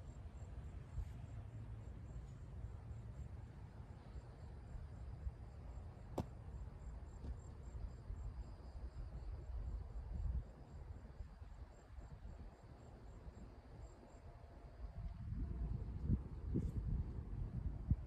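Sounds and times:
insects chirping: 0.0 - 18.0
wind rumble on microphone: 6.7 - 14.0, 14.6 - 18.0.

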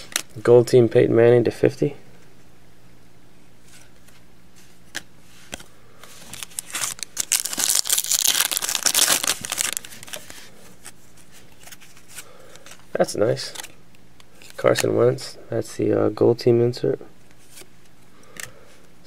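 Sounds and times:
foil wrapper crinkling and tearing: 6.2 - 10.2.

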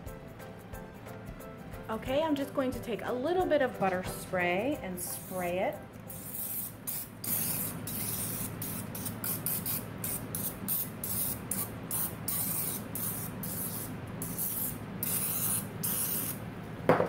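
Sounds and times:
aerosol spray hissing: 6.1 - 16.4.

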